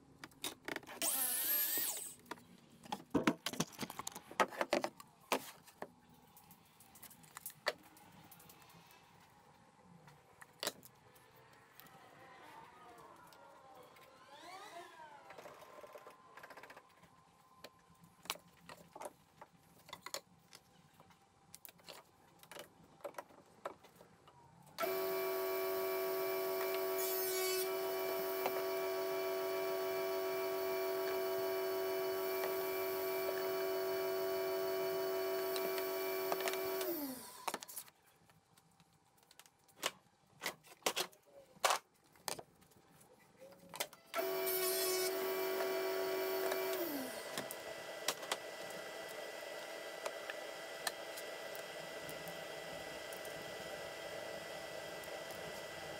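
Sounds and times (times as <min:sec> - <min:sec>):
table saw running: 0:01.0 - 0:02.2, 0:24.8 - 0:37.4, 0:44.2 - 0:55.9.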